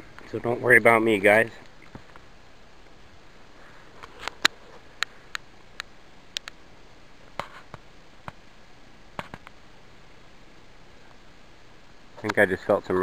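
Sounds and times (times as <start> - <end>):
sharp ticks and taps: 5.0 - 6.6.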